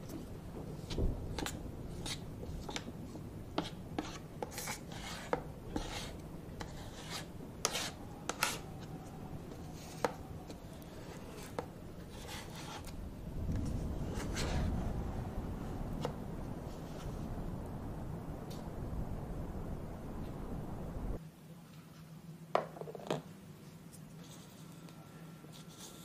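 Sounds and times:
low hum: 0.0 - 21.2
spatula scraping on metal plate: 3.6 - 8.6.

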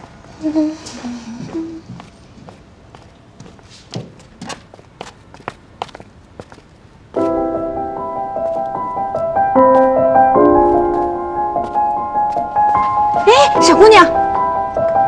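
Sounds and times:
soft piano music: 7.2 - 15.0.

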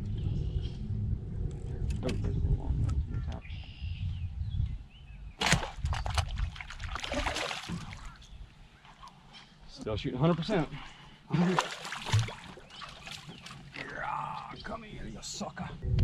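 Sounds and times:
low steady rumble: 0.0 - 4.6
fish splashing and thrashing: 5.4 - 8.3, 11.4 - 14.3.

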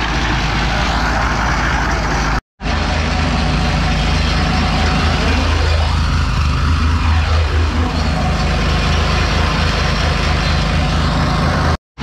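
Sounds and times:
concrete mixer engine droning: 0.0 - 11.8.

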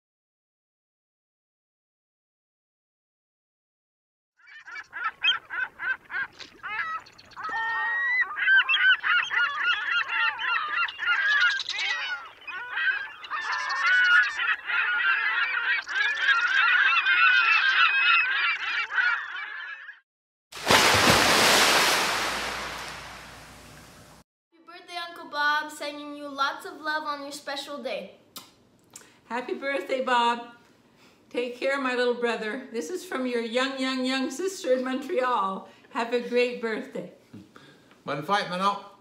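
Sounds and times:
geese honking: 4.5 - 20.0.

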